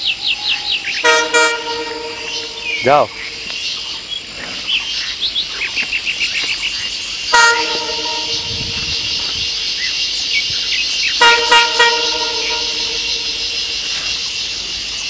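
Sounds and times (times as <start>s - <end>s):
insects chirring: 0.0s - 15.0s
horn toots: 1.0s - 3.3s, 7.3s - 9.7s, 11.2s - 14.4s.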